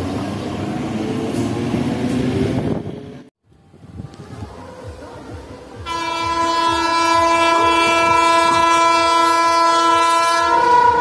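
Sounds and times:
train air horn blast: 5.9 - 11.0.

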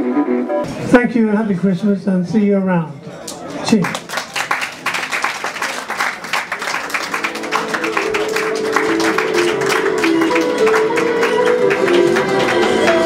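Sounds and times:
electric keyboard notes: 0.0 - 0.8, 7.1 - 13.0
audience applause: 3.4 - 13.0.

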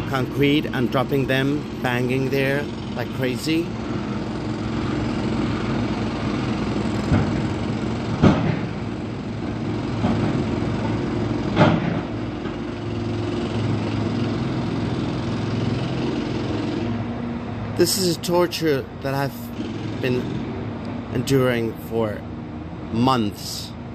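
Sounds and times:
heavy machinery engines running: 0.0 - 23.9.

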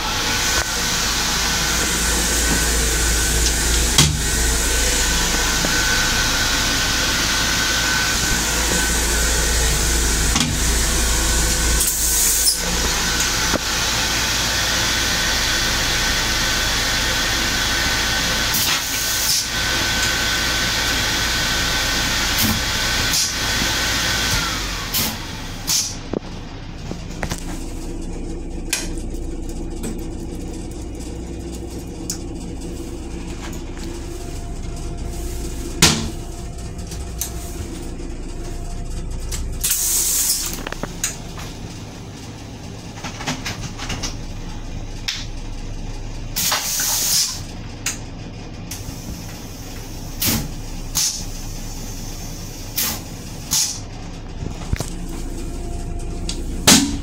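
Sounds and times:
train coach rumbling: 0.0 - 57.0.

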